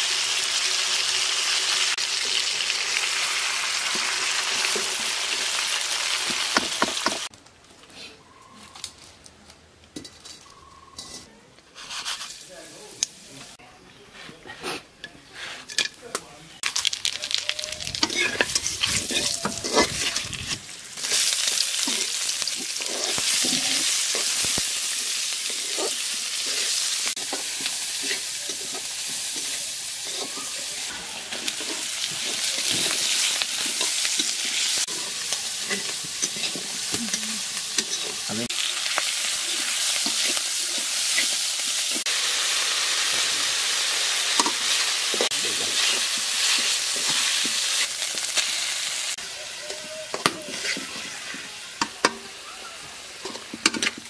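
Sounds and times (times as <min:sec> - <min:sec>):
oil sizzling in a pan: 0:00.0 - 0:07.3, 0:16.6 - 0:54.0
metal spatula scraping pan: 0:10.0 - 0:12.4, 0:17.9 - 0:30.4, 0:50.1 - 0:51.4.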